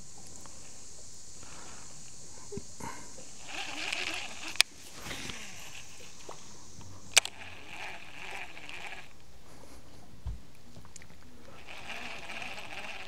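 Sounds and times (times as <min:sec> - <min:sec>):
steady high hiss: 0:00.0 - 0:13.0
fishing tackle clicks: 0:03.4 - 0:06.4, 0:07.1 - 0:09.2.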